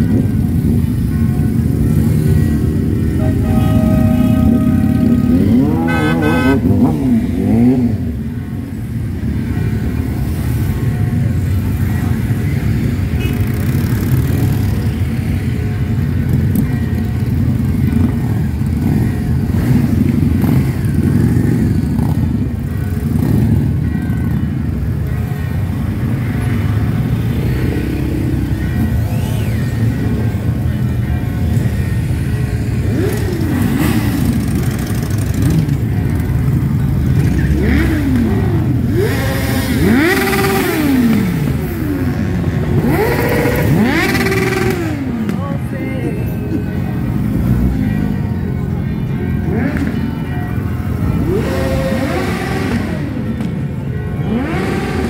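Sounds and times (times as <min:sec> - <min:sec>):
motorcycles pulling away: 0:00.0 - 0:55.0
wavering horn: 0:02.9 - 0:07.8.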